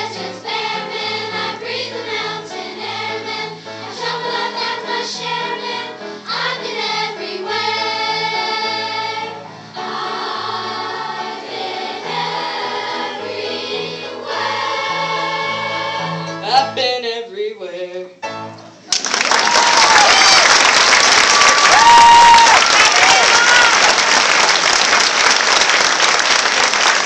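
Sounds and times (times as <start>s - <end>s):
children's choir singing: 0.0s - 16.4s
applause: 18.9s - 27.0s.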